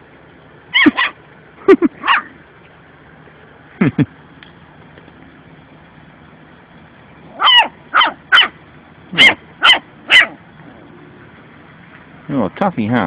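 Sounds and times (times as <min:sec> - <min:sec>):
puppy barking: 0:00.7 - 0:01.2, 0:02.0 - 0:02.4, 0:07.3 - 0:10.4.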